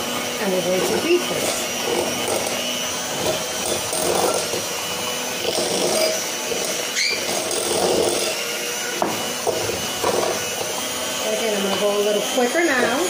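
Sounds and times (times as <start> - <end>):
electric hand mixer whipping: 0.0 - 13.0.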